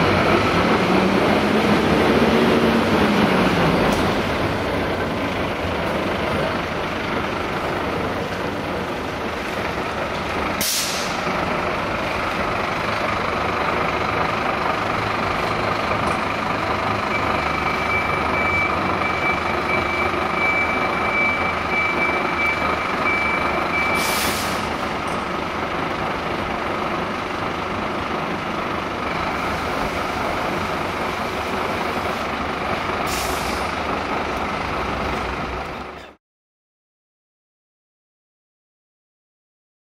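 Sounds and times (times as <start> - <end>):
diesel engine running: 0.0 - 36.2
air brakes hissing: 10.6 - 11.3, 23.8 - 24.9, 33.0 - 33.8
reversing alarm beeping: 16.9 - 24.5.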